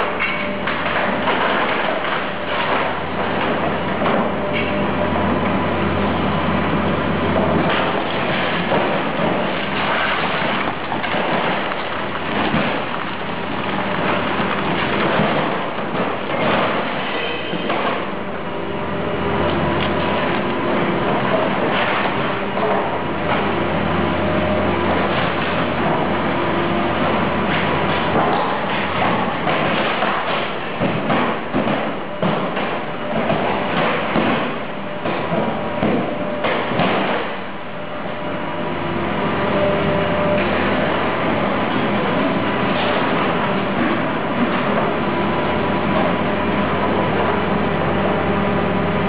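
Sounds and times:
steady mechanical din: 0.0s - 38.4s
heavy machinery rumbling and clattering: 0.0s - 49.0s
thuds and metal knocks: 27.0s - 37.4s.

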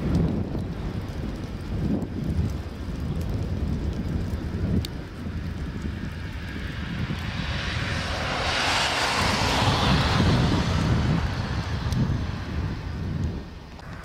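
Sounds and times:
wind rumble on microphone: 0.0s - 14.0s
vehicle passing by: 6.3s - 13.1s.

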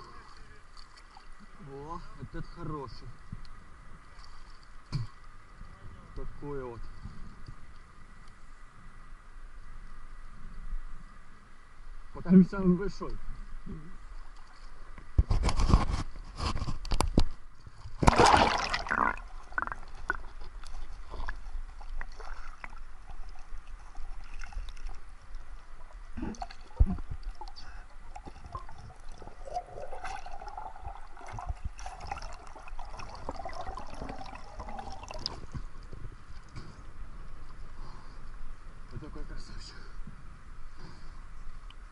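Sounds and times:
water splashing: 0.0s - 2.0s, 17.7s - 36.6s
underwater sloshing and gurgling: 0.0s - 12.1s, 13.1s - 39.0s.

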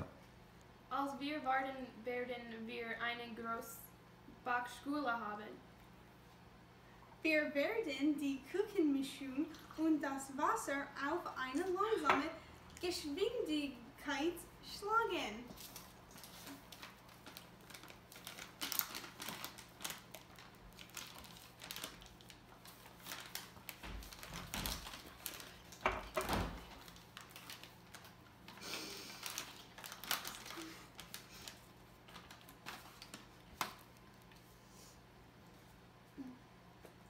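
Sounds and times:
plastic bag crinkling: 15.4s - 34.4s.

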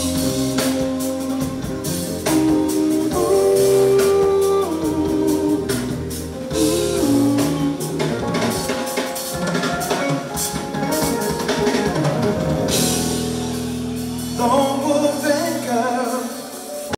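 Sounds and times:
electric bass lines: 0.0s - 8.8s
man singing: 0.0s - 9.3s, 14.2s - 16.9s
drum kit with busy cymbals: 0.0s - 16.9s
keyboards: 0.0s - 16.9s.

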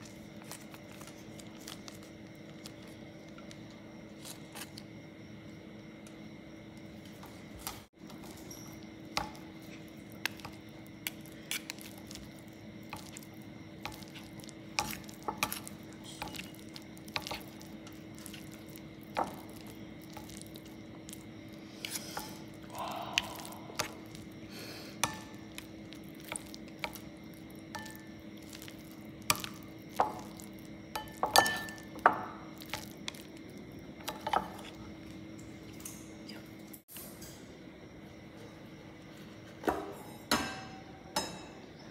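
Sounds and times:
wet noodle sounds: 7.5s - 36.8s.

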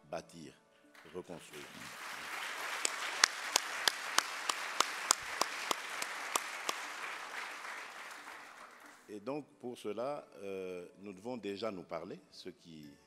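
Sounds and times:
audience applauding: 1.0s - 9.1s
loud evenly spaced claps: 1.0s - 9.1s.

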